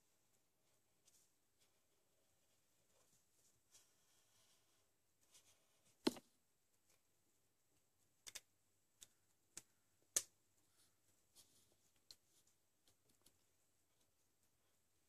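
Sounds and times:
marker caps clicking: 0:08.2 - 0:10.3.

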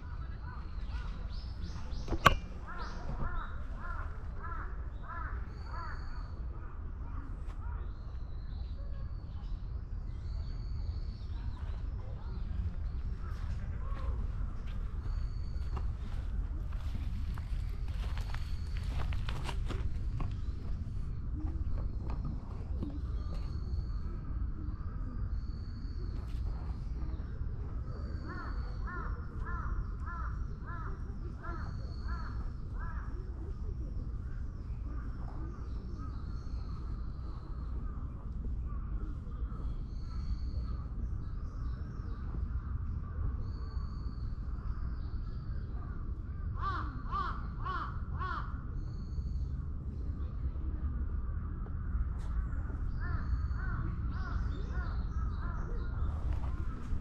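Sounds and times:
low background rumble: 0:00.0 - 0:57.0
crows cawing: 0:02.6 - 0:06.1, 0:28.3 - 0:30.9, 0:46.6 - 0:48.6.

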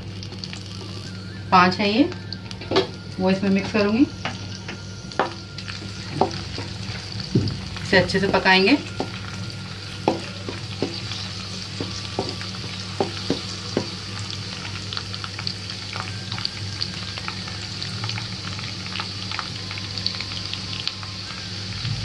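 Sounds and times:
garlic sizzling in hot oil: 0:00.0 - 0:22.0
spatula knocking against pan: 0:10.0 - 0:11.1.

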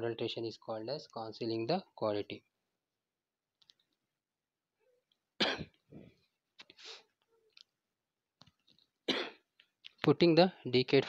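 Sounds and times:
person coughing: 0:05.4 - 0:06.2, 0:09.1 - 0:09.5
short breath: 0:06.8 - 0:07.1.

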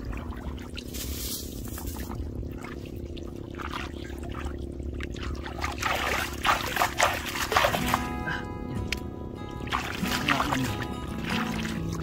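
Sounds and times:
water trickling and pouring: 0:00.0 - 0:08.1, 0:09.6 - 0:12.0
hands splashing in muddy water: 0:03.5 - 0:08.1, 0:09.6 - 0:12.0.

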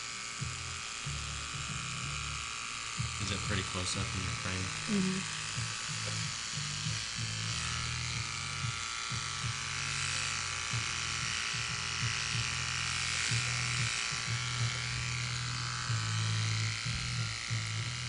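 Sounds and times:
electric hair clippers buzzing: 0:00.0 - 0:18.0.

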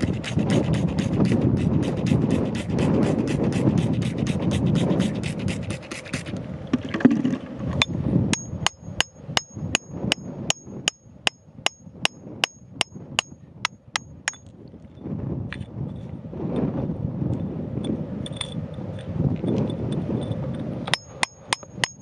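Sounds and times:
metal tool tapping on stone: 0:07.8 - 0:14.5, 0:20.9 - 0:22.0.

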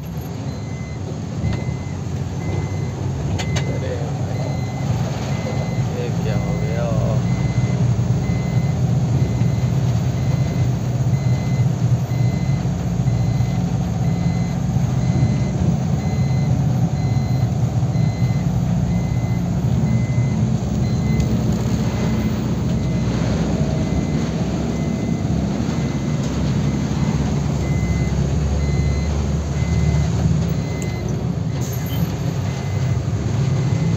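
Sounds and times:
road noise: 0:00.0 - 0:33.9
truck engine running: 0:00.0 - 0:33.9
faint high beep: 0:00.5 - 0:07.7.

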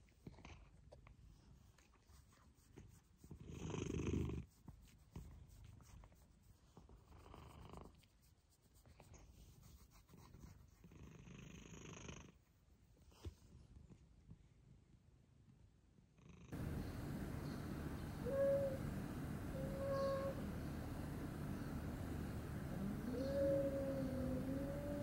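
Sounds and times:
cat purring: 0:16.2 - 0:25.0.

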